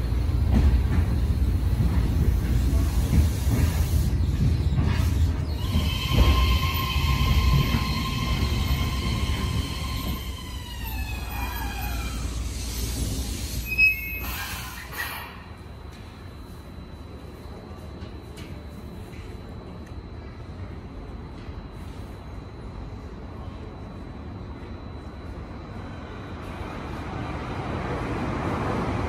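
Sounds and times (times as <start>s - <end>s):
train wheel rumble: 0.0s - 16.1s
brake squeal: 9.3s - 15.4s.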